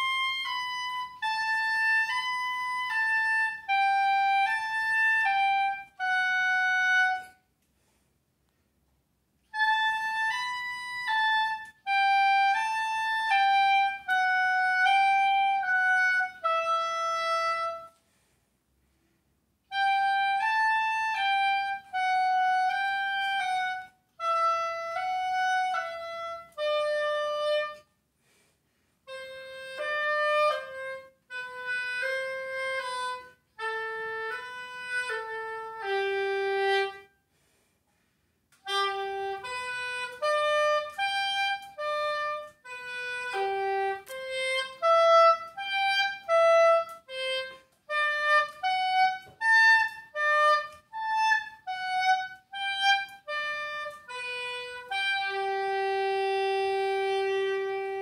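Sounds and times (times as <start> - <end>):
solo oboe: 0.0 - 7.5, 9.4 - 18.2, 19.6 - 37.5, 38.6 - 58.0.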